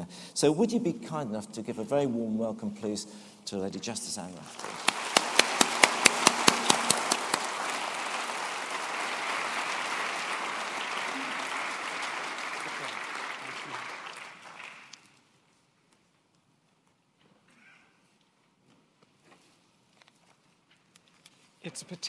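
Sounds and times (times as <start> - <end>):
audience applauding: 4.5 - 15.1
sharp close claps: 4.6 - 15.0.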